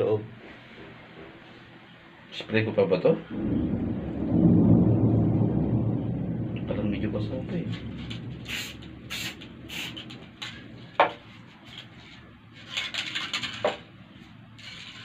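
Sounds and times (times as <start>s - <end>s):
spray can hissing: 8.5s - 10.1s.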